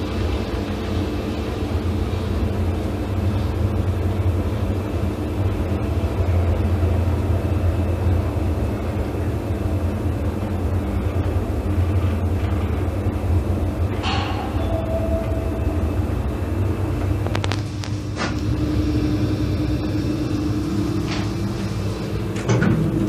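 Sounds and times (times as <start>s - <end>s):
constant hum: 0.0s - 23.0s
lift car low rumble: 0.0s - 23.0s.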